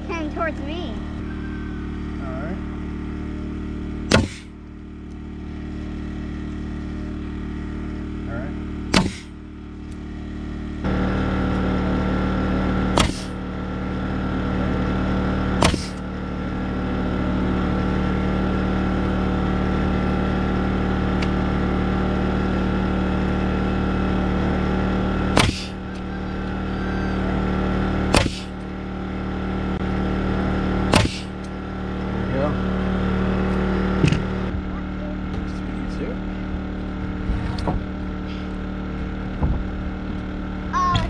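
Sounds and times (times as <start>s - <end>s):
air compressor running: 0.0s - 41.0s
nail gun firing: 4.1s - 4.5s, 8.9s - 9.3s, 13.0s - 13.4s, 15.6s - 16.0s, 25.4s - 25.8s, 28.1s - 28.5s, 30.9s - 31.3s.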